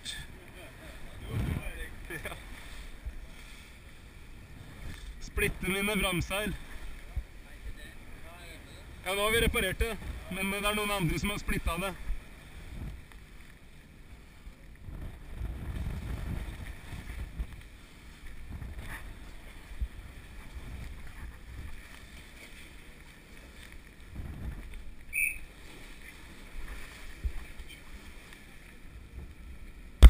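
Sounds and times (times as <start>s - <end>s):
wind buffeting microphone: 1.0s - 2.2s, 14.8s - 17.6s, 18.2s - 21.8s, 24.1s - 25.2s
brief high squeak: 25.1s - 25.5s.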